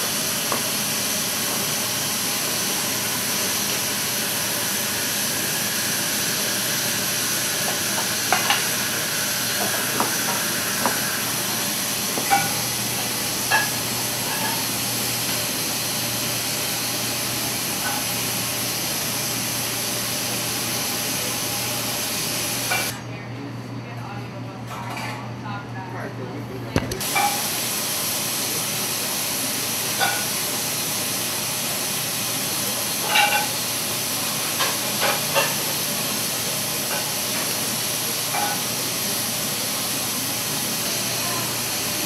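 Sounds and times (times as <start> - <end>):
machinery rushing hiss: 0.0 - 22.9.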